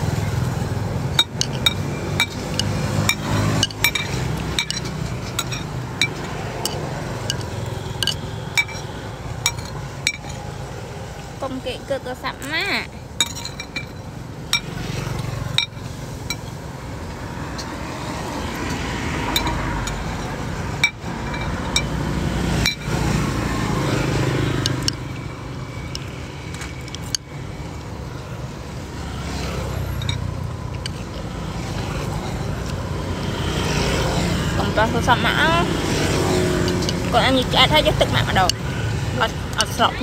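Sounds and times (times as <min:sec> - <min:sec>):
road traffic engine rumble: 0:00.0 - 0:40.0
chopsticks clinking on ceramic bowl: 0:01.2 - 0:10.5, 0:34.2 - 0:40.0.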